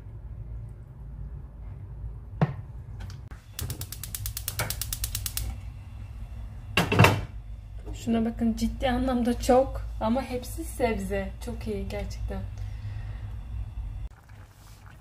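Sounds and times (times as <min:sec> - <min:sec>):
gas igniter clicking rapidly: 0:03.5 - 0:05.6.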